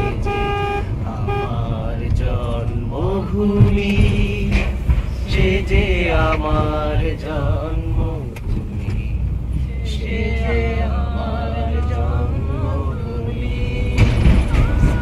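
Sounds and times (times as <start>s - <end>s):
tyres on road: 0.0s - 15.0s
van engine rumble: 0.0s - 15.0s.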